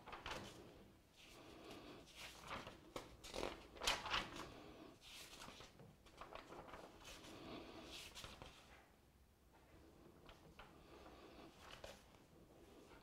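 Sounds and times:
paper pages rustling: 0:00.0 - 0:00.7, 0:02.1 - 0:07.3, 0:07.9 - 0:08.8, 0:11.6 - 0:12.2.

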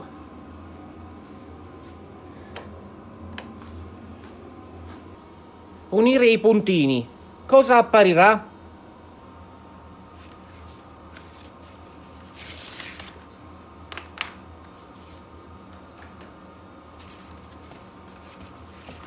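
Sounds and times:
steady background hum: 0:00.0 - 0:19.0
paper envelope rustling: 0:10.1 - 0:13.3, 0:17.0 - 0:19.0.

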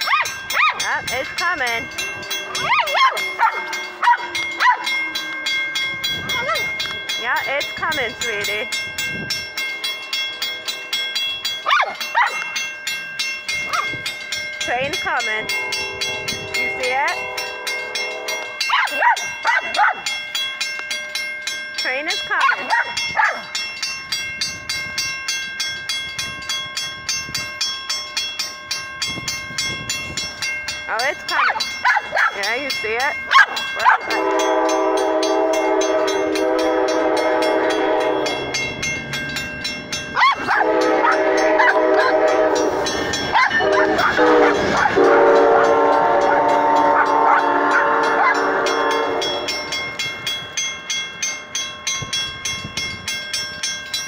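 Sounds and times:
level crossing bell ringing: 0:00.0 - 0:54.0
train horn: 0:15.5 - 0:18.7, 0:33.9 - 0:38.6, 0:40.4 - 0:49.7.

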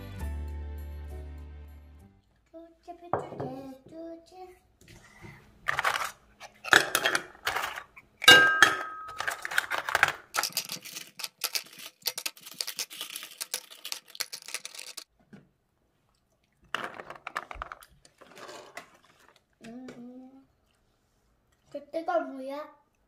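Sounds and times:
shells clattering against a pot: 0:08.2 - 0:15.1.

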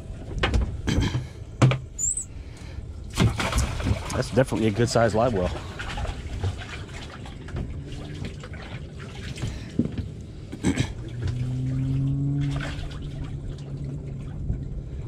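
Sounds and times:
steady low hum: 0:00.0 - 0:15.0
water sloshing and splashing: 0:00.0 - 0:15.0
knocks against a hatch: 0:01.6 - 0:01.8.

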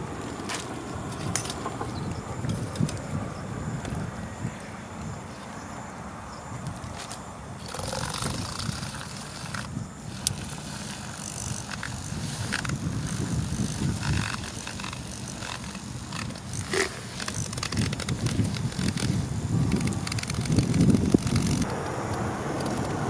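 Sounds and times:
wind buffeting microphone: 0:00.0 - 0:23.0
small clicks: 0:06.6 - 0:21.9.

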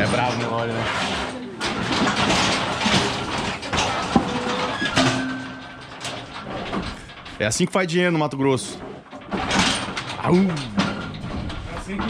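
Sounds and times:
metal gates rattling and clanking: 0:00.0 - 0:12.0
sharp metal knocks: 0:01.7 - 0:06.8
metal squeal: 0:03.8 - 0:07.1.

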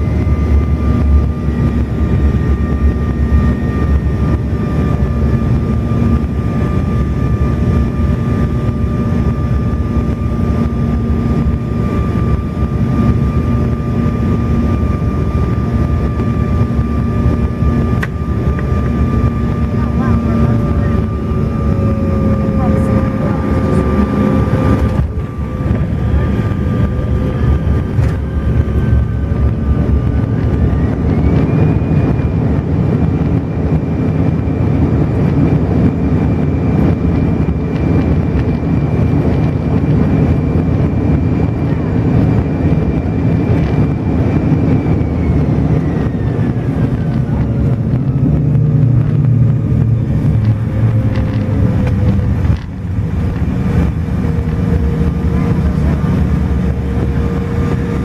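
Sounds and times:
aircraft cabin rumble: 0:00.0 - 0:58.0
jet engine whine: 0:00.0 - 0:58.0.

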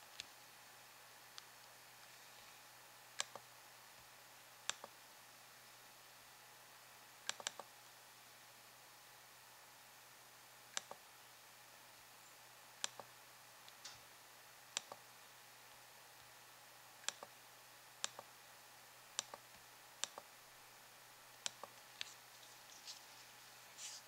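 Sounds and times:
faint steady hum: 0:00.0 - 0:24.0
computer mouse clicking: 0:03.2 - 0:03.4, 0:04.7 - 0:04.9, 0:07.3 - 0:07.7, 0:10.8 - 0:11.0, 0:12.8 - 0:13.1, 0:14.8 - 0:15.0, 0:17.0 - 0:17.3, 0:18.0 - 0:18.3, 0:19.2 - 0:20.3, 0:21.4 - 0:22.2.

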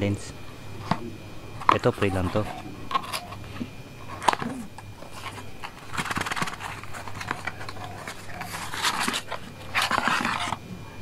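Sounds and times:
cardboard box crackling and scraping: 0:05.0 - 0:10.6.

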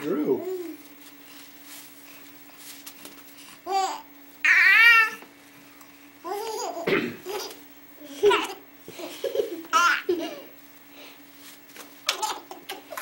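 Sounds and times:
baby laughing: 0:06.2 - 0:10.5, 0:12.0 - 0:13.0.

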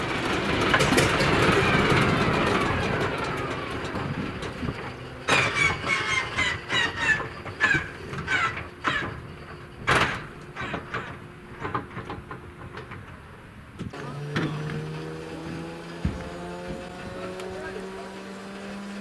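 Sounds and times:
radial engine coughing and popping: 0:00.0 - 0:18.0
squeaky chirps: 0:05.2 - 0:11.2
low drone with rising tones: 0:13.9 - 0:19.0.

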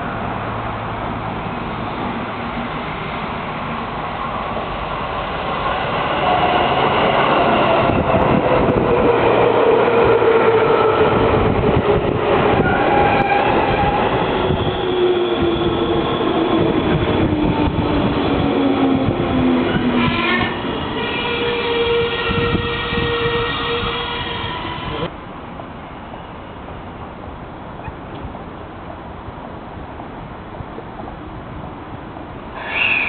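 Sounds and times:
train braking whine: 0:12.5 - 0:25.1, 0:32.6 - 0:33.0.

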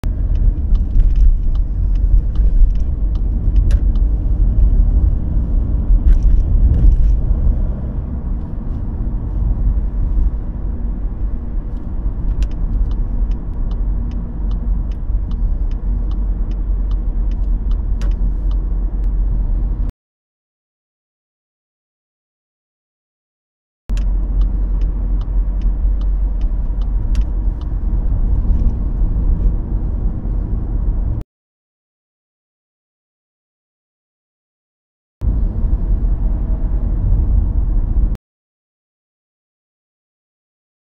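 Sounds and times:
engine and tyre rumble: 0:00.0 - 0:19.9, 0:23.9 - 0:31.2, 0:35.2 - 0:38.2
light regular ticking: 0:00.1 - 0:05.1, 0:11.7 - 0:18.7, 0:23.9 - 0:28.1.

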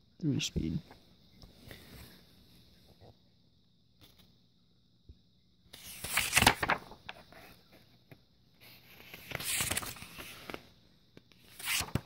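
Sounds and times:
paper pages rustling: 0:05.8 - 0:10.7, 0:11.3 - 0:12.0.

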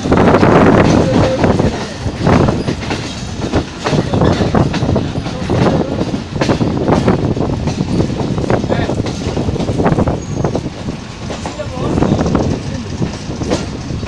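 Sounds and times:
train wheels clattering over rails: 0:00.0 - 0:14.0.

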